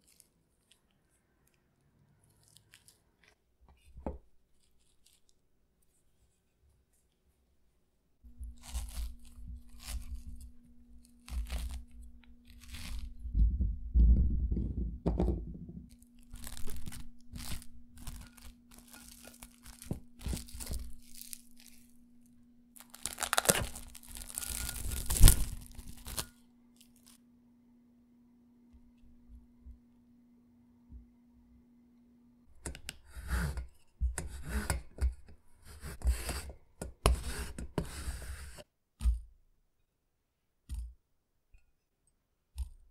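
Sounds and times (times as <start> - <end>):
faint steady hum: 0.0 - 38.6
cling film crinkling: 8.4 - 13.2, 15.9 - 27.2.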